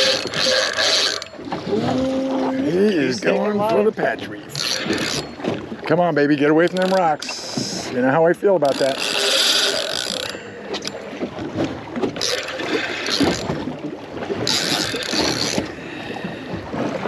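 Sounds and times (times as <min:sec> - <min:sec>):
fishing reel cranking: 0:00.0 - 0:01.4, 0:04.5 - 0:05.4, 0:06.6 - 0:07.5, 0:08.6 - 0:11.0, 0:12.2 - 0:13.5, 0:14.4 - 0:15.7.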